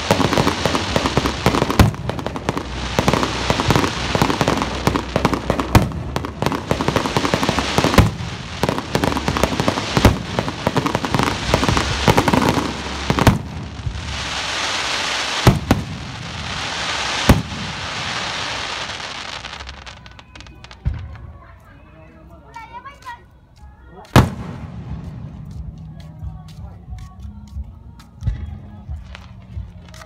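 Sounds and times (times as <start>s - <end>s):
fireworks booms: 0.0s - 20.1s, 24.1s - 25.7s
fireworks fountain hiss: 0.0s - 21.2s
fireworks crackling: 0.0s - 30.0s.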